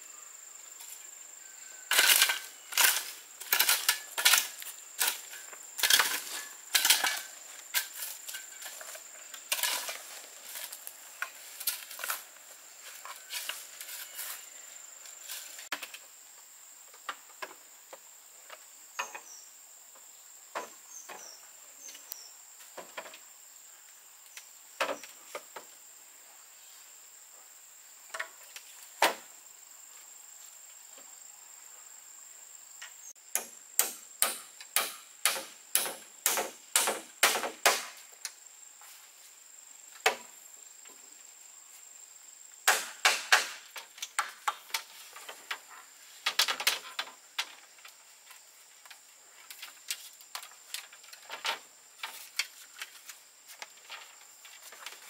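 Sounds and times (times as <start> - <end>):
high insect drone: 0.0 - 55.0
sharp chopping knocks: 33.3 - 38.0, 42.7 - 43.7.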